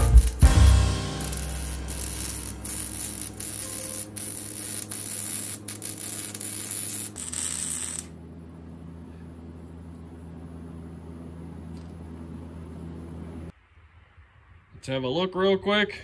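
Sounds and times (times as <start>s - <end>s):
welder arc hissing: 0.0s - 8.2s
low steady hum: 0.0s - 14.8s.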